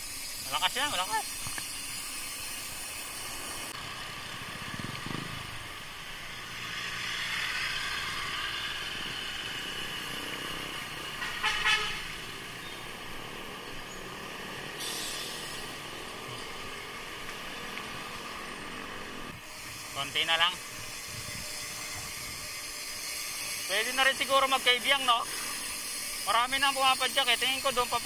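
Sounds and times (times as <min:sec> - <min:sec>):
motor traffic passing: 0:00.0 - 0:28.0
wind and road noise: 0:00.0 - 0:28.0
horn toot: 0:11.1 - 0:12.3.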